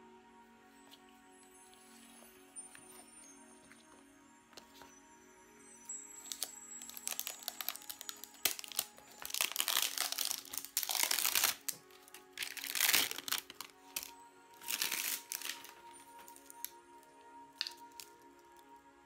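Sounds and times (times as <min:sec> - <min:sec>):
background music: 0:00.0 - 0:19.0
plastic wrap crinkling: 0:06.2 - 0:16.8, 0:17.6 - 0:18.2.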